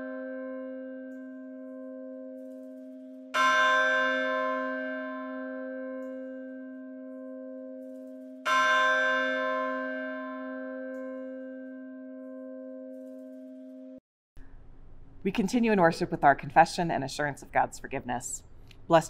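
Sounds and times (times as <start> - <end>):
church bell tolling: 0.0 - 14.0.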